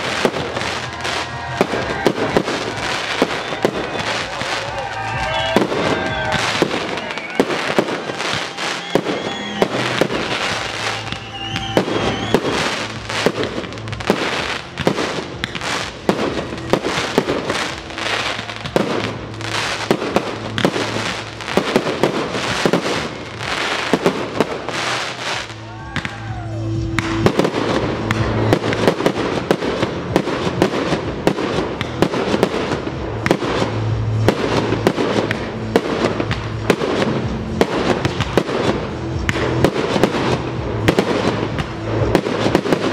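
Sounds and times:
fireworks bursting and crackling: 0.0 - 42.9
music playing: 0.0 - 42.9.

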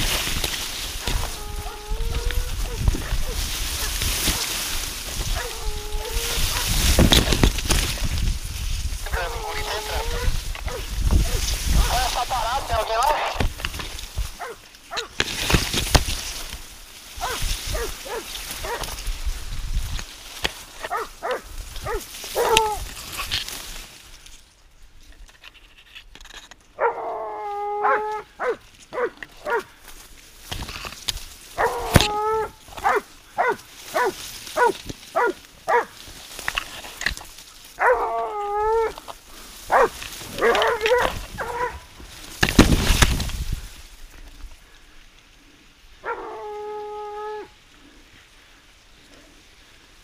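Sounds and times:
hunting dogs howling: 1.0 - 3.5, 5.2 - 6.8, 9.0 - 12.7, 17.2 - 18.9, 20.8 - 22.8, 26.8 - 29.7, 31.6 - 35.9, 37.8 - 41.9, 46.0 - 47.6
dogs barking sharply: 31.6 - 35.9, 39.7 - 41.8.

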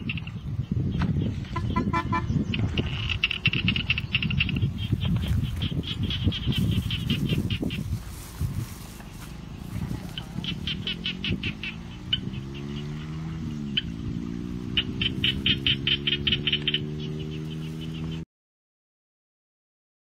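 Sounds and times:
rapid high chirping animal calls: 1.7 - 8.0, 10.0 - 14.0, 14.7 - 18.2.

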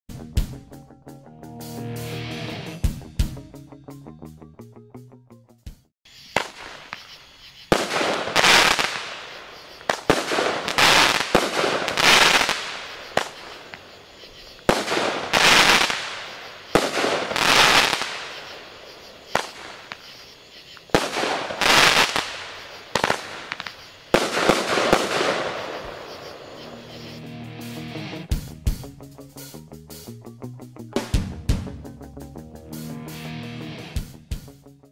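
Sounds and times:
hissing crackling firework bursts: 6.1 - 27.2
firework shot cracks: 6.2 - 13.9, 14.6 - 26.5.

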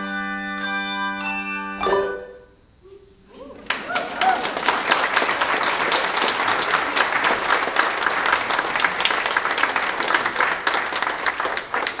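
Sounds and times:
crowd applauding: 3.6 - 12.0.

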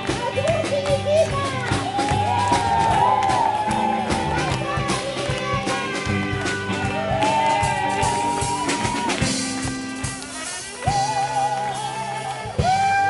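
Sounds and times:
live band playing dance tune: 0.0 - 13.0
person singing long held notes: 10.7 - 13.0.

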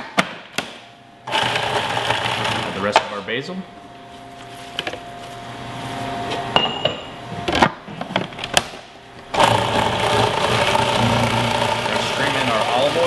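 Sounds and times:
food processor motor running: 1.3 - 2.8, 9.3 - 13.0.

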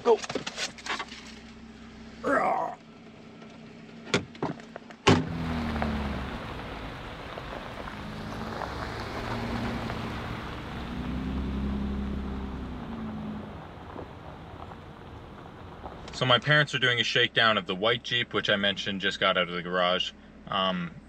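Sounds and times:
tyres on gravel: 0.0 - 20.4
car engine rumble: 0.0 - 21.0
car door slamming: 4.0 - 5.6.

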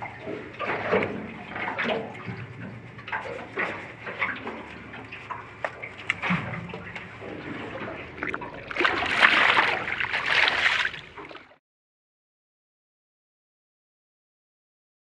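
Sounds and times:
water sloshing and splashing: 0.0 - 11.6.

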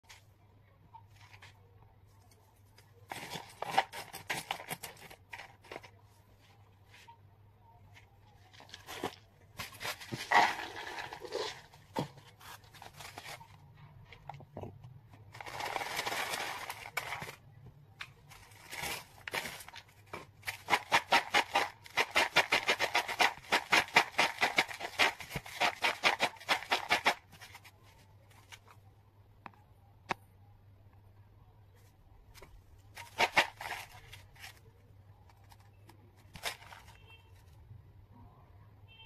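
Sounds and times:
snacks rustling into a bowl: 8.5 - 13.6
snacks rattling in a bowl: 9.8 - 11.8, 15.4 - 17.4, 18.5 - 27.6, 33.0 - 34.6.

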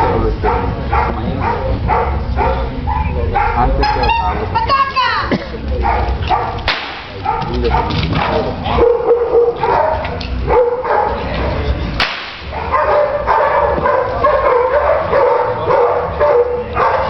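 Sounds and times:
dog barking: 0.0 - 4.5, 5.8 - 11.7, 12.5 - 17.0
sharp crack: 6.6 - 7.2, 12.0 - 12.6.

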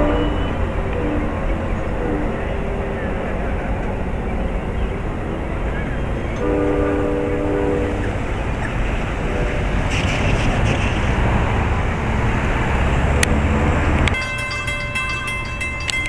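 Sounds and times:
horn chord: 0.0 - 2.6, 6.4 - 8.0
crossing bell ringing: 0.0 - 3.4, 14.1 - 16.0
passing train or traffic noise: 0.0 - 16.0.

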